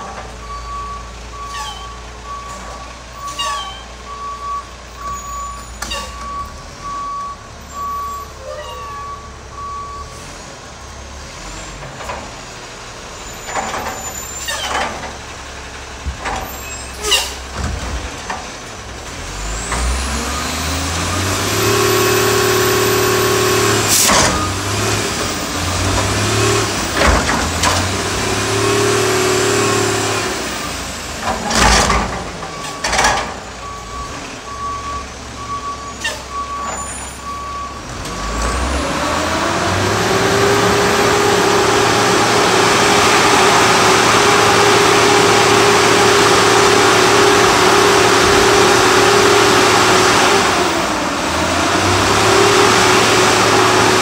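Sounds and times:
garbage truck engine running: 0.0 - 54.0
reversing beeps: 0.4 - 10.3, 32.5 - 38.3.

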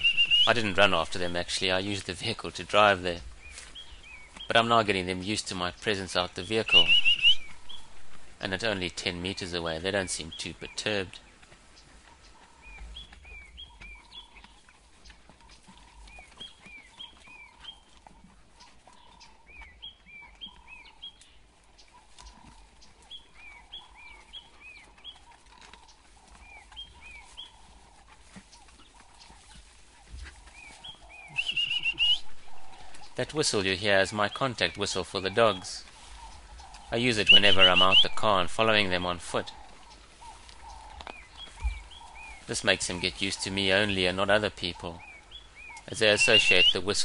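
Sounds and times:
birds chirping: 0.0 - 47.0
soft low bird calls: 0.0 - 47.0
person whistling: 31.4 - 32.2.

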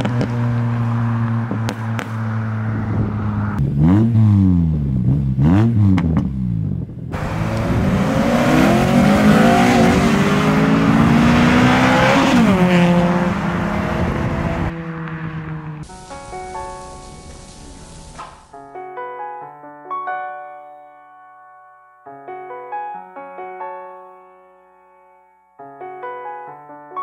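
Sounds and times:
car engine revving: 0.0 - 18.2.

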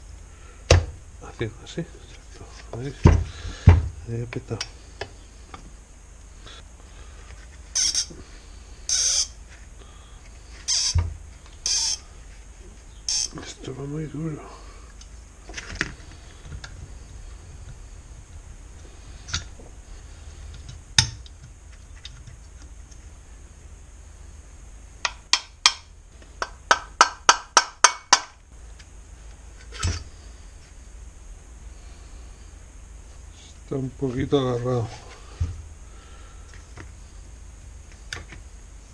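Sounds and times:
taps and knocks on engine parts: 25.0 - 25.8, 26.4 - 28.4.

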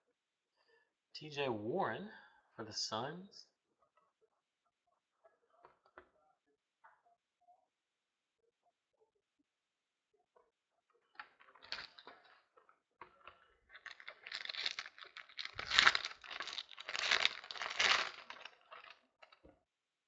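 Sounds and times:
wrapper tearing and crinkling: 11.5 - 12.1, 13.7 - 19.4.

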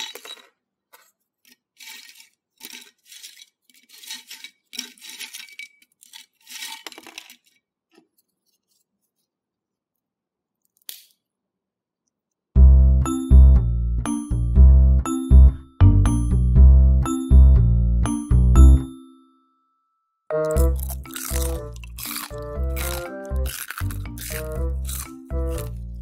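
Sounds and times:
pork rinds crackling and rustling: 20.5 - 25.9.

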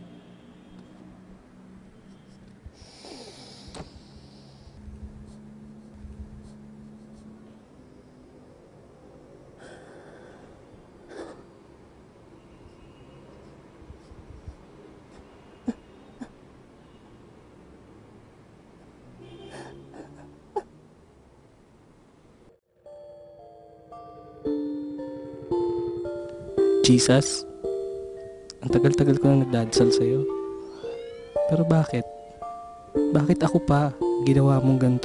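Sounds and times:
man breathing heavily: 2.7 - 4.9
man sniffling: 2.8 - 4.5.

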